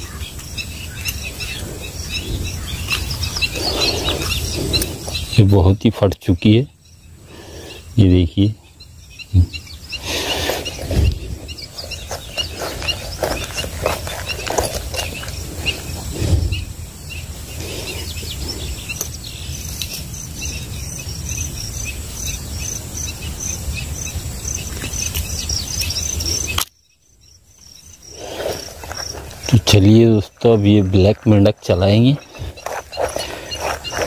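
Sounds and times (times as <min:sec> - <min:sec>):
steady low rumble: 0:00.0 - 0:05.8
birds chirping: 0:00.0 - 0:34.0.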